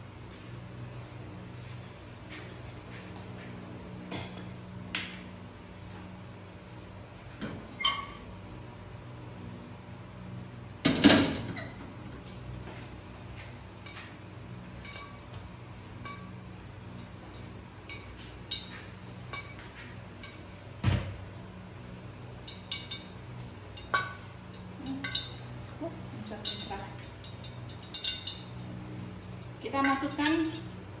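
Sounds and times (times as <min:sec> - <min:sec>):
steady low hum: 0:00.0 - 0:31.0
metal cookware clanking: 0:14.8 - 0:15.4, 0:22.5 - 0:25.5, 0:26.2 - 0:30.8
small clinks and ticks: 0:23.7 - 0:30.8.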